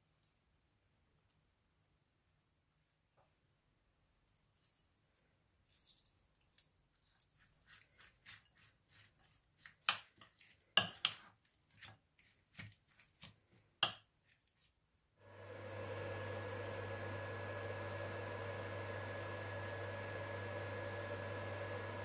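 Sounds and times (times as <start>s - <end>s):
spoon squelching through salad: 4.2s - 14.8s
spoon clinking against bowl: 10.8s - 11.2s.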